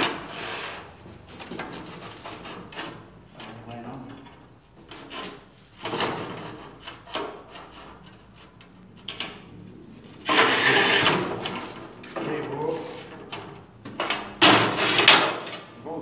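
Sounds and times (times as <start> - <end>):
tile cutter wheel scraping tile: 0.0 - 1.0, 10.2 - 13.2, 14.2 - 15.6.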